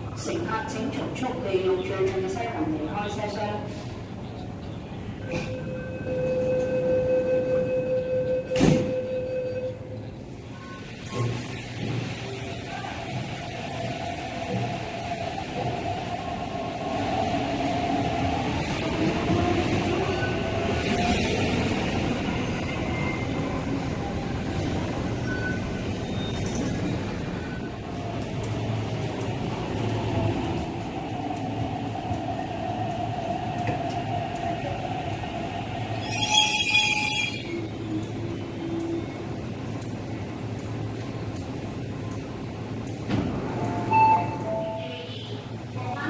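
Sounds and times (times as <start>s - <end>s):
electric train rumble and motor whine: 0.0s - 45.9s
high-pitched brake squeal: 36.0s - 37.6s.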